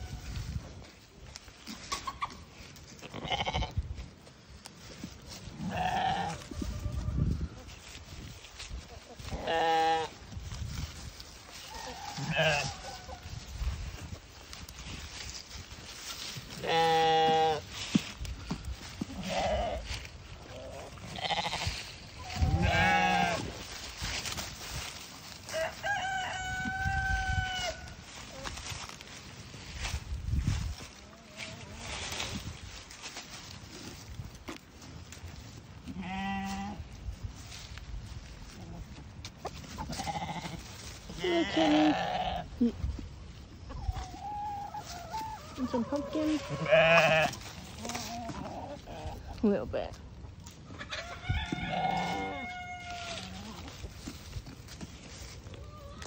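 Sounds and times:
sheep and goats bleating: 0:02.9 - 0:04.0, 0:05.4 - 0:10.4, 0:11.5 - 0:13.4, 0:16.0 - 0:25.0, 0:35.8 - 0:37.0, 0:39.7 - 0:42.7, 0:44.8 - 0:49.6, 0:50.7 - 0:54.2
rooster crowing: 0:11.6 - 0:13.3, 0:25.5 - 0:28.0, 0:50.9 - 0:53.3.

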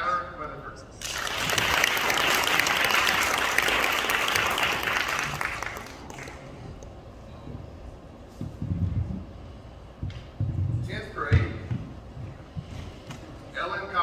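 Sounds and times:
audience applauding: 0:01.0 - 0:06.6.

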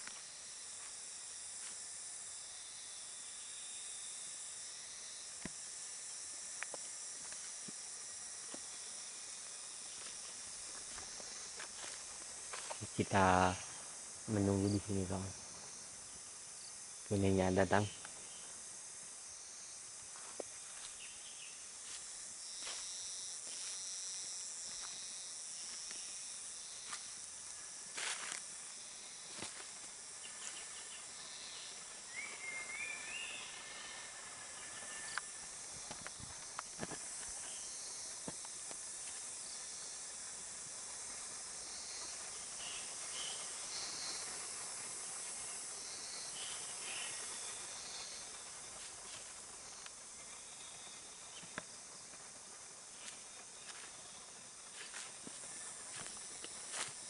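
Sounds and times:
insects hissing: 0:00.0 - 0:57.0.

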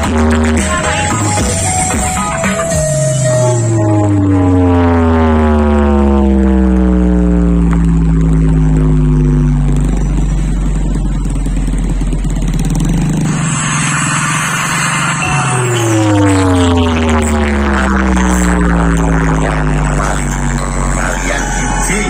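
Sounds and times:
deep heavy bass: 0:00.0 - 0:22.0
electronic tone sliding down: 0:00.3 - 0:11.9, 0:12.6 - 0:22.0.

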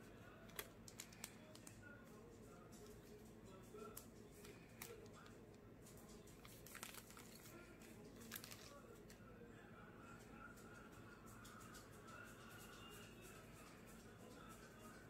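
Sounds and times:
low room hum: 0:00.0 - 0:15.0
plastic film crinkling: 0:00.5 - 0:01.8, 0:06.3 - 0:08.8.

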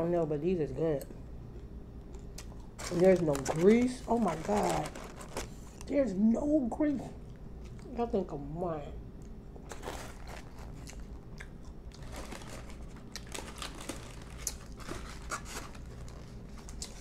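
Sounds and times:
chewing and crunching: 0:01.0 - 0:05.9, 0:07.2 - 0:07.9, 0:09.2 - 0:17.0
foam box rustling: 0:02.8 - 0:05.7, 0:12.1 - 0:16.8
paper crinkling: 0:02.8 - 0:05.9, 0:09.7 - 0:11.0, 0:12.0 - 0:17.0.

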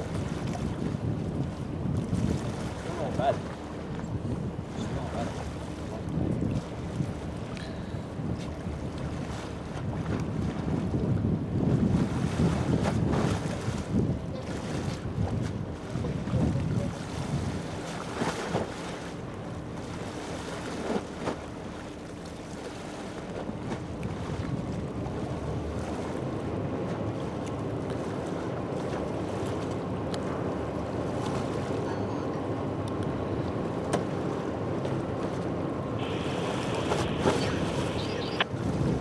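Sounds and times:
wind on microphone: 0:00.0 - 0:03.0, 0:06.1 - 0:07.3, 0:08.0 - 0:17.8, 0:35.3 - 0:39.0
ship engine humming: 0:25.1 - 0:39.0
water washing: 0:35.0 - 0:39.0.

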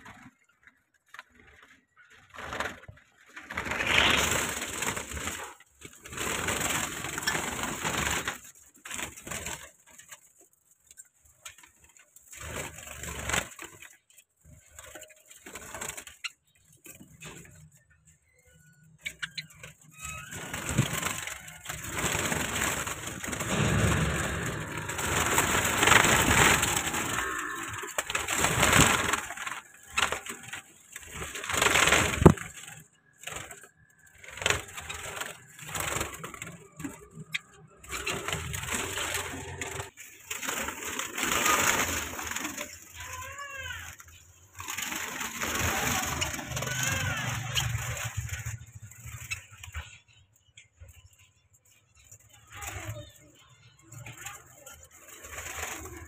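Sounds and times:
cage birds calling: 0:11.2 - 0:56.0
rustling of dry straw: 0:20.1 - 0:30.6.

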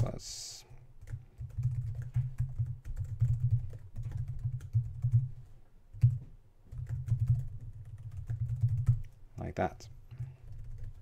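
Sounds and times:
typing on computer keyboard: 0:01.0 - 0:05.3, 0:05.9 - 0:09.1, 0:10.2 - 0:11.0.

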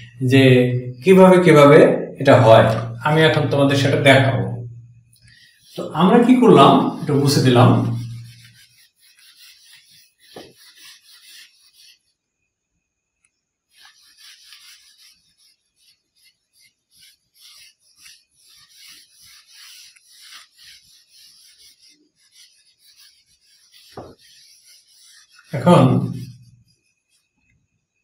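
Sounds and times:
eraser rubbing on whiteboard: 0:05.2 - 0:12.2, 0:13.7 - 0:27.4.

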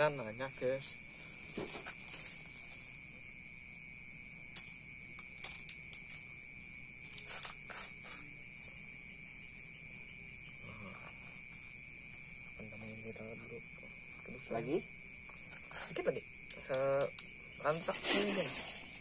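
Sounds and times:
night insects chirring: 0:00.0 - 0:19.0
fingers scratching sand and soil: 0:07.1 - 0:08.7, 0:17.6 - 0:19.0.

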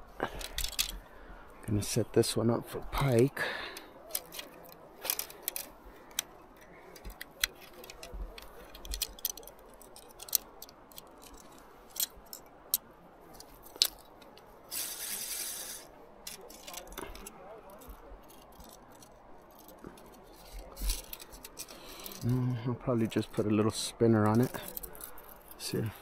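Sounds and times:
short rustle: 0:03.4 - 0:22.4.

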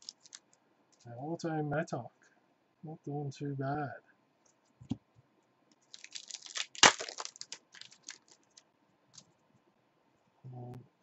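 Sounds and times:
wrapper ripping: 0:00.0 - 0:00.4, 0:05.8 - 0:08.6
wrapper crinkling: 0:00.0 - 0:01.1, 0:05.7 - 0:08.6.

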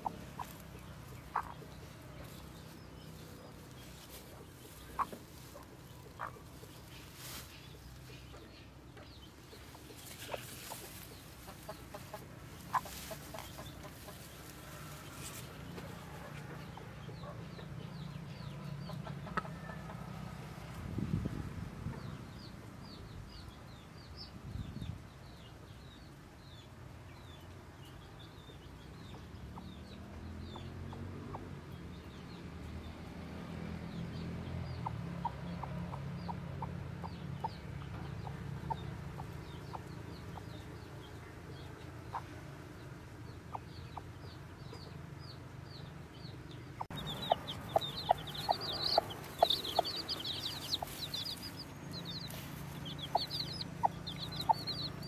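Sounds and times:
hen clucking: 0:00.0 - 0:17.8, 0:18.6 - 0:20.1, 0:46.8 - 0:55.0
chicks peeping: 0:00.0 - 0:20.0, 0:33.9 - 0:55.0.

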